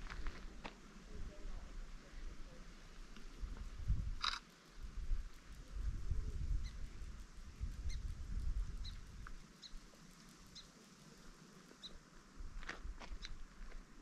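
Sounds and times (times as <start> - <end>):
wind buffeting microphone: 3.4 - 9.4
small animal chirping: 4.2 - 4.5, 7.7 - 8.1, 8.7 - 9.9.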